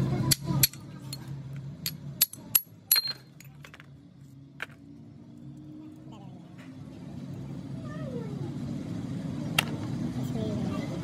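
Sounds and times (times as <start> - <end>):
metal tools clinking: 0.4 - 4.0.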